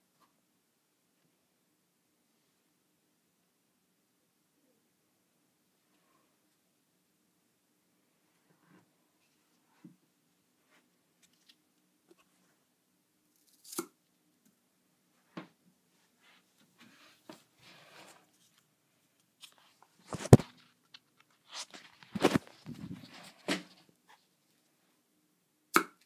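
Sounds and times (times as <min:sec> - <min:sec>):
toy handling rustles and knocks: 0:19.4 - 0:23.8.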